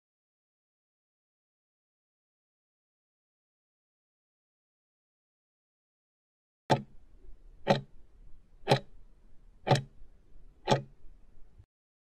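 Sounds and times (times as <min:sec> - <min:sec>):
sharp clock ticks: 0:06.7 - 0:07.0, 0:07.6 - 0:07.9, 0:08.6 - 0:09.0, 0:09.6 - 0:10.0, 0:10.6 - 0:11.0.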